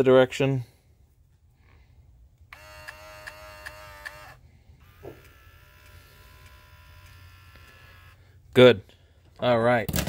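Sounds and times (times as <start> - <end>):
small motor whining: 2.5 - 8.4.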